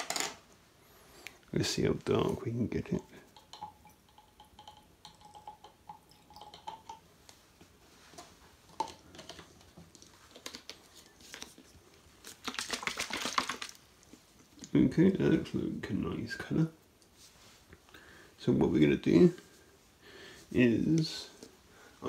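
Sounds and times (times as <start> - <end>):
faint liquid drips: 2.4 - 15.0
liquid sloshing in shaken bottle: 8.8 - 14.2.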